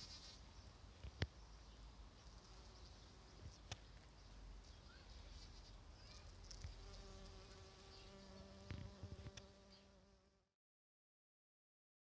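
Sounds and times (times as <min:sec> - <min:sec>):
bumblebee buzzing: 0:06.5 - 0:10.2.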